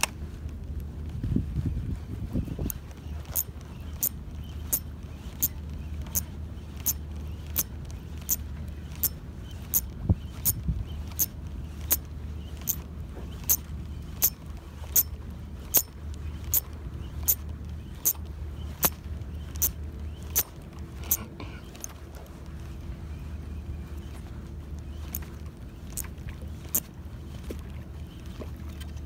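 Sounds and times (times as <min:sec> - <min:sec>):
low rumble: 0:00.0 - 0:29.0
fishing reel ticking: 0:02.6 - 0:21.9, 0:24.9 - 0:26.9.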